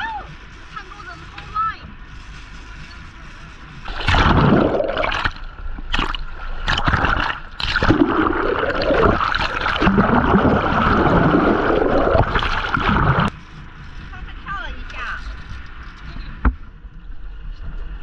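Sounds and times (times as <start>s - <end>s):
underwater water rushing and gurgling: 2.0s - 13.4s.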